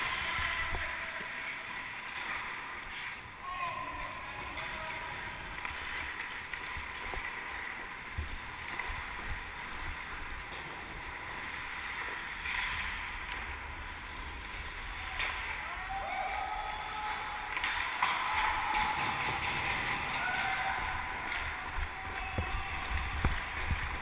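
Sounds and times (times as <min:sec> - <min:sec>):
wind rumble on microphone: 0:20.8 - 0:24.0.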